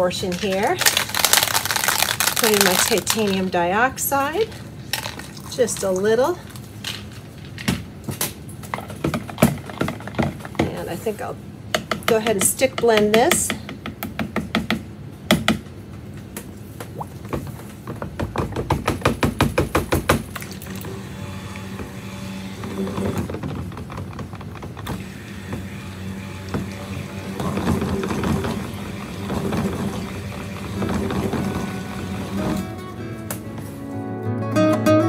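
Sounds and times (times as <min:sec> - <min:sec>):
background music: 0:30.9 - 0:35.0.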